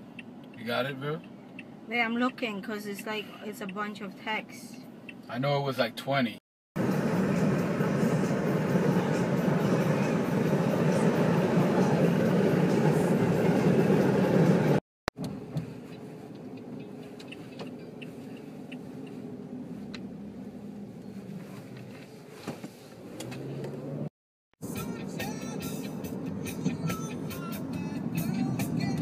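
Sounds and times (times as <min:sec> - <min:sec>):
road and engine noise in car: 0:00.0 - 0:29.0
car interior hum: 0:15.2 - 0:24.0, 0:24.7 - 0:29.0.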